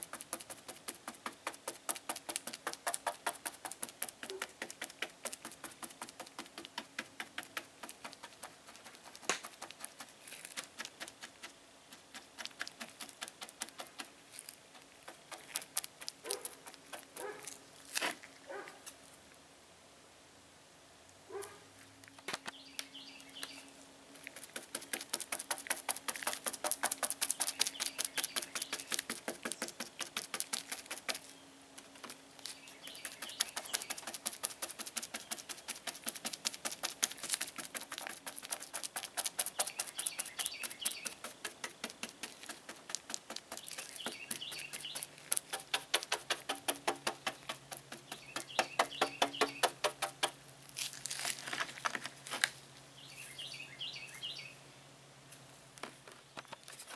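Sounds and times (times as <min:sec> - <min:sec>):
brush tapping wet fiberglass: 0:00.0 - 0:18.2, 0:24.2 - 0:32.2, 0:32.9 - 0:50.4.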